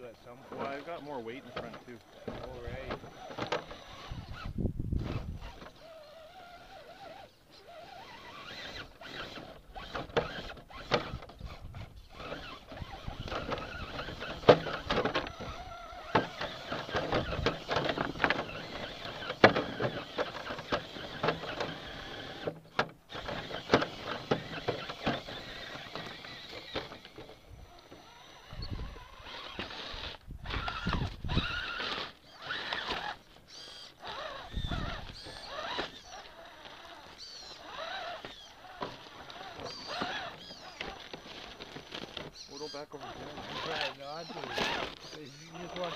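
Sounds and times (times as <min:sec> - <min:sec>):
small electric motor whirring: 0:00.0 - 0:45.9
tyres and chassis knocking on rocks: 0:08.4 - 0:27.4, 0:34.0 - 0:42.5.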